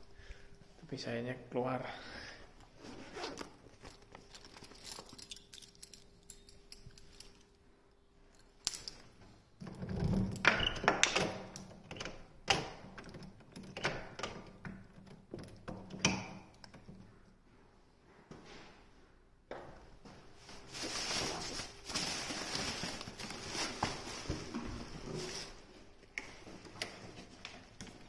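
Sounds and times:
keys jangling in door lock: 4.4 - 7.5.

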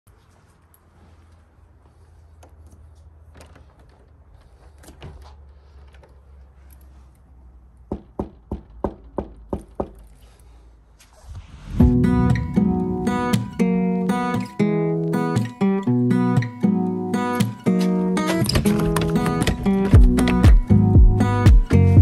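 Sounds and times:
knocking on a door: 7.9 - 10.0
steady low hum: 11.0 - 15.2.

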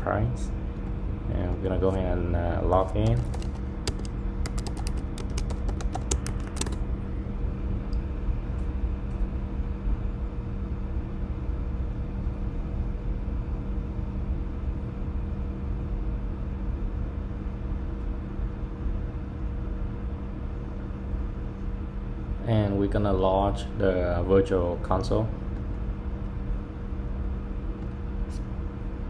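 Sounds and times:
steady machine hum: 0.0 - 29.0
keyboard keystrokes: 3.0 - 6.8.

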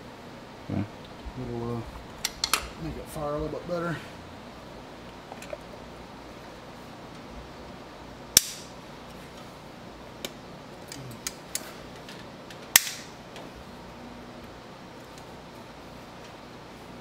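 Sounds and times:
sharp plastic snaps: 8.4 - 8.7, 12.7 - 13.1.

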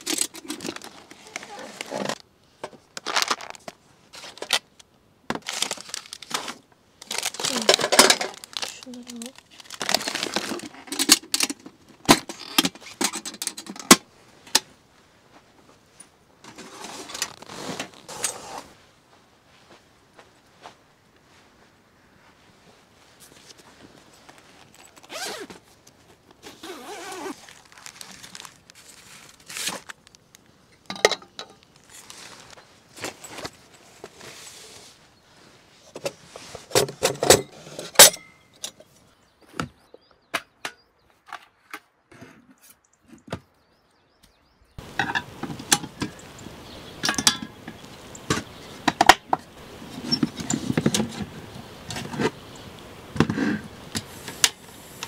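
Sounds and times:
camping stove metal clicks and clinks: 0.0 - 0.9, 10.4 - 14.0, 30.7 - 31.6, 36.8 - 38.9, 47.0 - 49.4.

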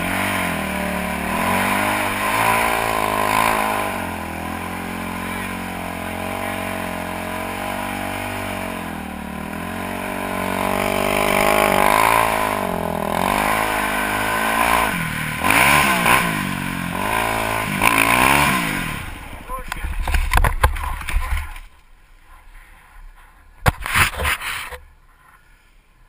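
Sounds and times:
quad engine revving: 0.0 - 21.3.

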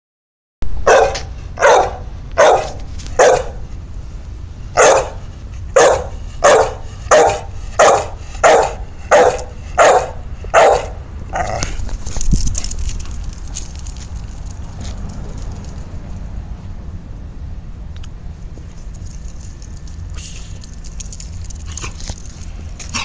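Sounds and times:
dog barking: 0.8 - 3.6, 4.8 - 5.2, 5.8 - 11.5.

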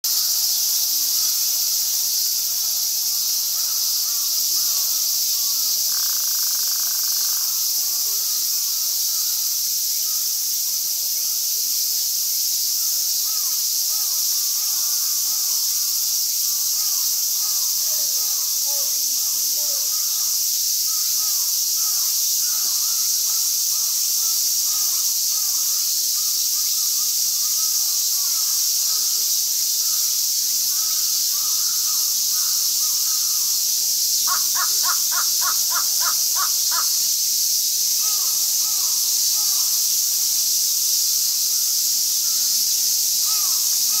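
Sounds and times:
insect chorus drone: 0.1 - 44.0
crows cawing: 34.3 - 37.0.

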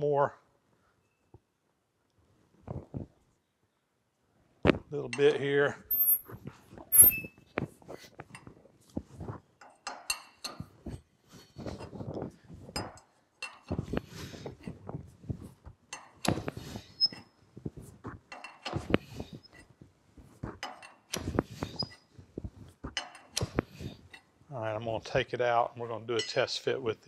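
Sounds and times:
wrench metallic clinks: 6.9 - 7.2.

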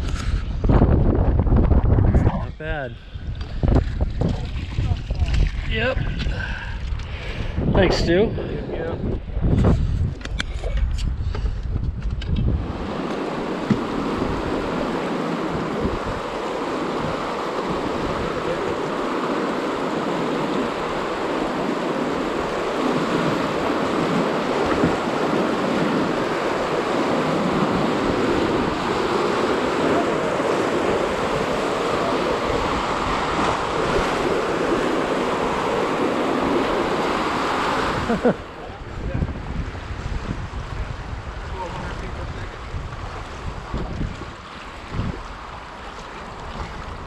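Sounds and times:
river water rushing: 12.6 - 38.8.

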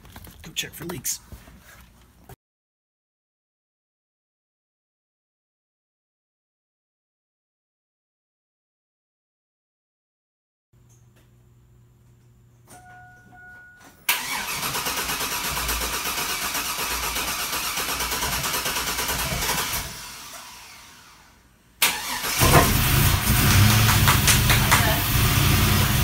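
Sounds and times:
starter motor cranking: 14.1 - 21.2, 21.8 - 26.0
engine running loudly: 22.4 - 26.0.

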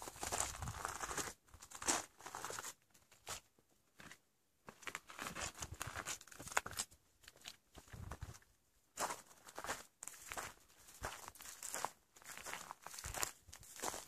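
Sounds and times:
footsteps on gravel and dry grass: 0.0 - 3.4, 4.0 - 8.4, 9.0 - 14.0.

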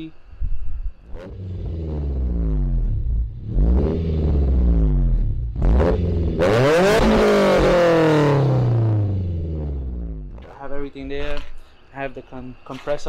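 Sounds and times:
car engines revving: 1.0 - 10.7.

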